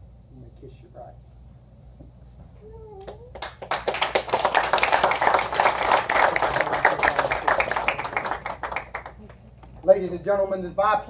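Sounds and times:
crowd applauding: 3.3s - 9.8s.

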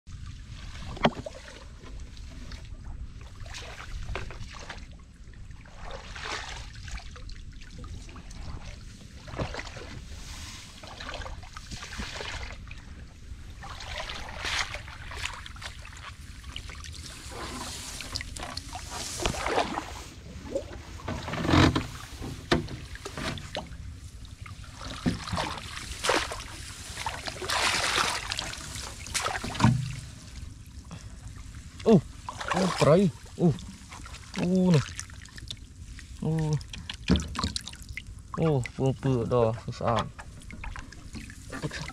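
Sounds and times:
wind rumble on microphone: 0.1s - 27.5s
muddy water splashing: 0.1s - 41.9s.

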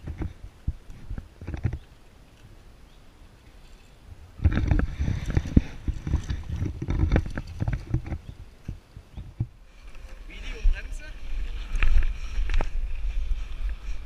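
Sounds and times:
mountain bike rattling over trail: 3.4s - 14.0s.

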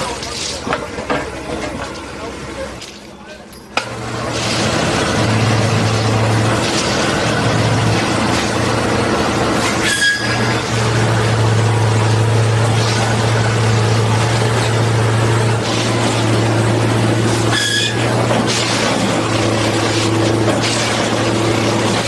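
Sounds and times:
machine engine drone: 3.8s - 22.0s
short high squeals: 9.6s - 10.7s, 17.4s - 18.9s.

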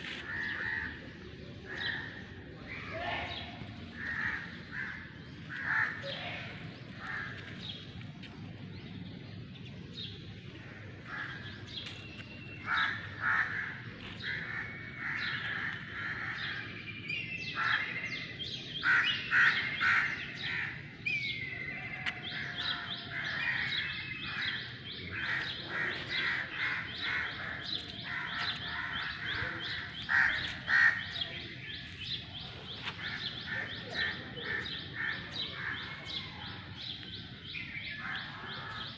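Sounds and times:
crow cawing: 25.1s - 31.2s.

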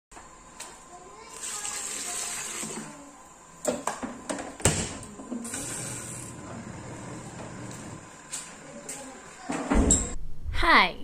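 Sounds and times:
water pouring into a tub: 1.3s - 2.8s.

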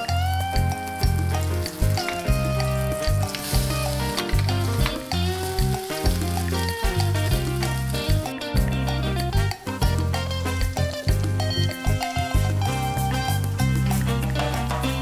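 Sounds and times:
pancake sizzling in oil: 0.0s - 8.3s
background music with bass line: 0.0s - 15.0s.

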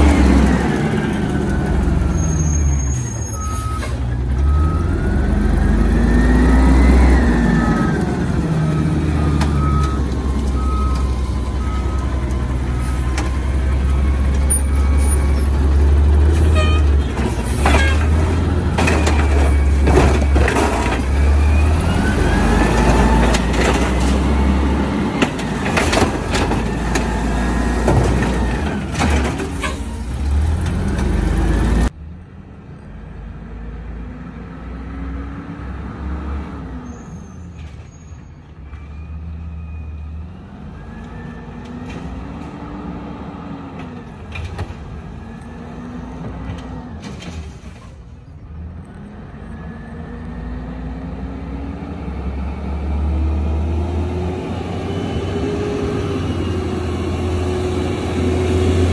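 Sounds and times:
garbage truck engine revving: 4.2s - 31.9s, 49.1s - 58.9s.

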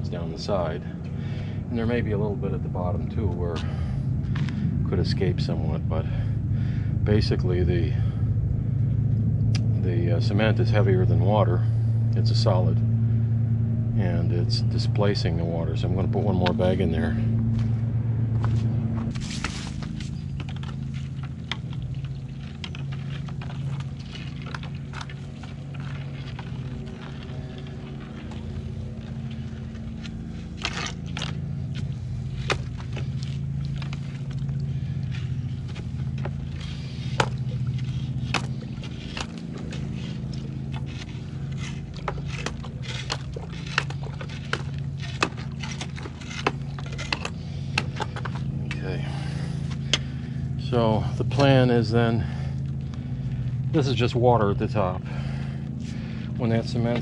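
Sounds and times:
low motor hum: 0.0s - 57.0s
rod tamping wet cement: 19.1s - 54.0s.

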